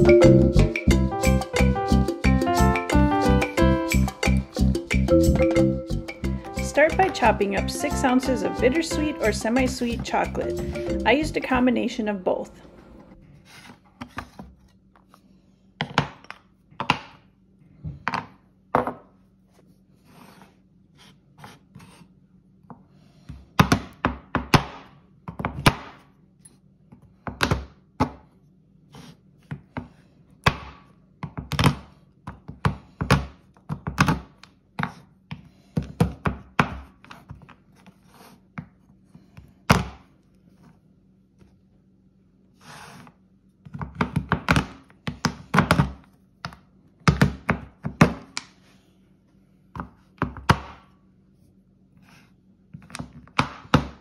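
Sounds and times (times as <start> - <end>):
knife chopping chocolate on board: 23.5 - 26.1, 27.2 - 28.2, 29.0 - 37.5, 43.6 - 48.4.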